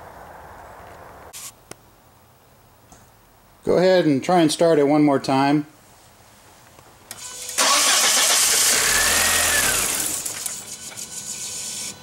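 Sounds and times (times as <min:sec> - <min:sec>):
car engine starting and running: 0:07.2 - 0:10.6.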